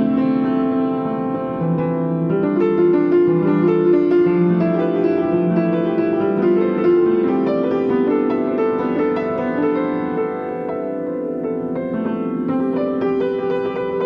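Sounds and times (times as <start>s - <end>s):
slow piano piece: 0.0s - 14.0s.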